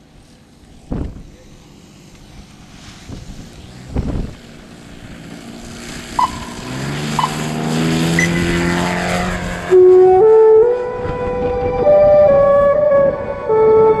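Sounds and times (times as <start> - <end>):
model airplane engine running up: 0.0 - 11.8
flute-like music: 9.7 - 14.0.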